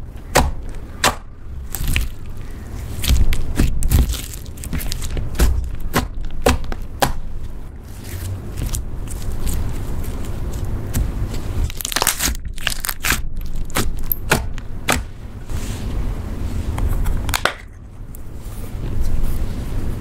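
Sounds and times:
slime squishing: 0:00.0 - 0:15.3.

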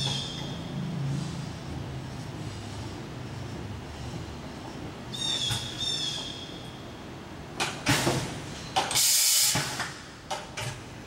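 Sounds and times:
pneumatic air hissing: 0:07.8 - 0:10.2.

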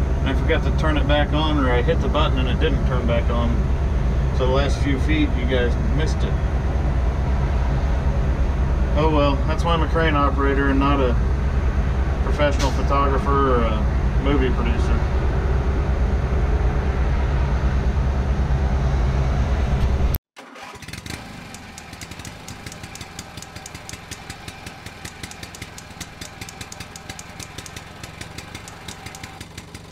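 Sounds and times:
quiet engine with rapid ticking: 0:00.0 - 0:06.4, 0:20.6 - 0:29.9
diesel engine running: 0:00.0 - 0:29.9.

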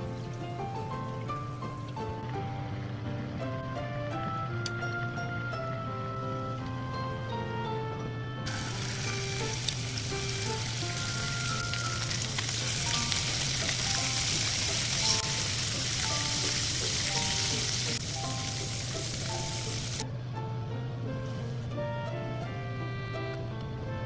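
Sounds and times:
fish sizzling in a frying pan: 0:08.5 - 0:20.0.

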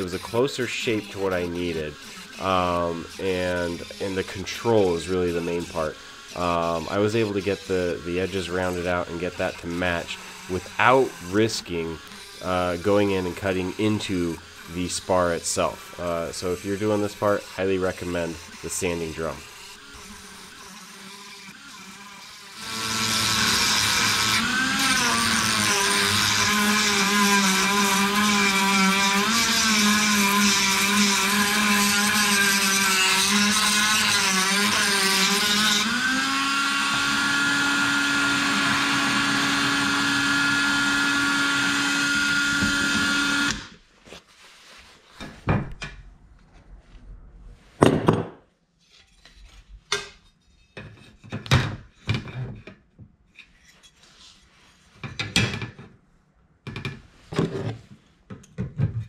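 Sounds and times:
rotary tool grinding metal: 0:00.0 - 0:43.8.

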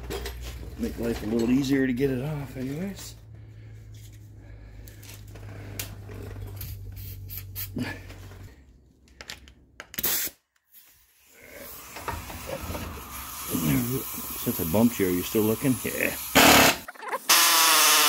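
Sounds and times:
aerosol spray hissing: 0:13.0 - 0:16.4.

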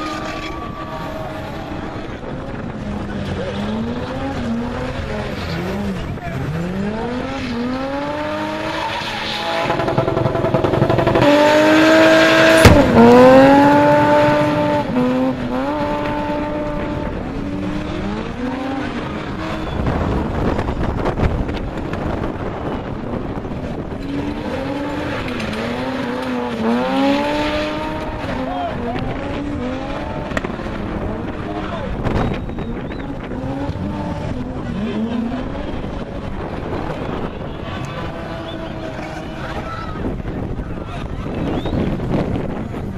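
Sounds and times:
car engine revving hard: 0:00.0 - 0:22.2, 0:23.1 - 0:39.7
sharp bang: 0:12.6 - 0:13.2.

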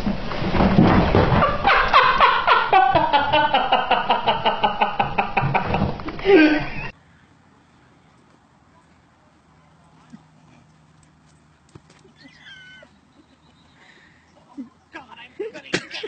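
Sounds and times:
person laughing hard: 0:01.6 - 0:06.9.

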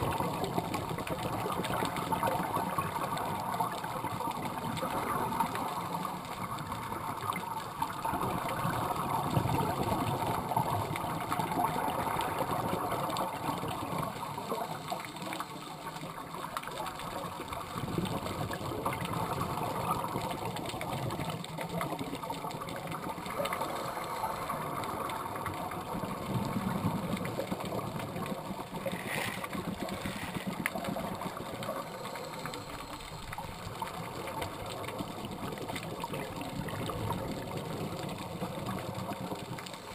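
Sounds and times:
underwater crackling hiss: 0:00.0 - 0:39.9
bubbling of exhaled breath: 0:17.2 - 0:39.9.

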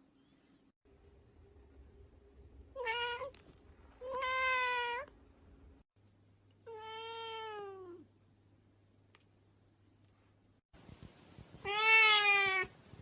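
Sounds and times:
cat meowing: 0:06.7 - 0:08.0, 0:11.6 - 0:12.7.

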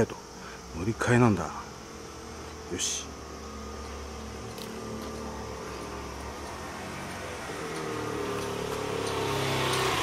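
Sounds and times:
motor scooter engine approaching: 0:03.3 - 0:10.0.

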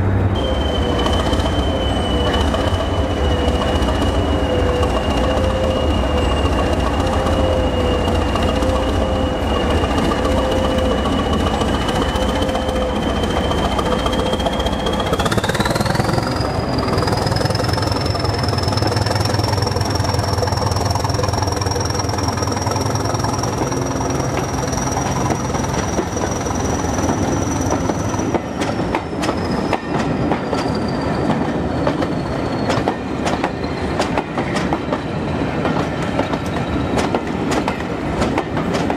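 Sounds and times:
diesel engine whine: 0:00.0 - 0:28.4
train wheels clicking over rail joints: 0:02.2 - 0:38.9.

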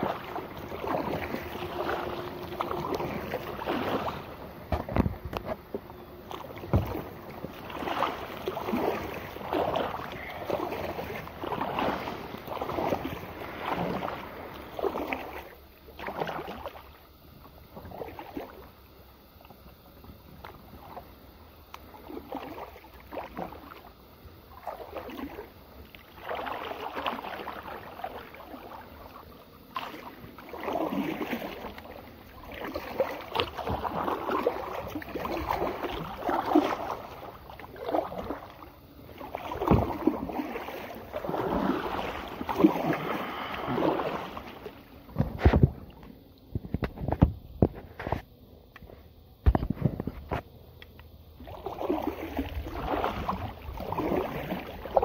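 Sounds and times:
kayak paddle splashing: 0:00.0 - 0:55.0.

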